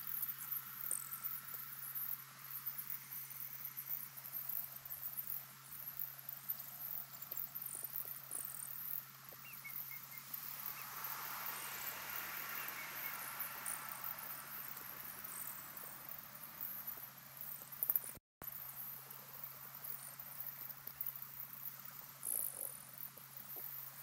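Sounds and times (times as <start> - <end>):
faint high chirping: 0.0 - 18.2.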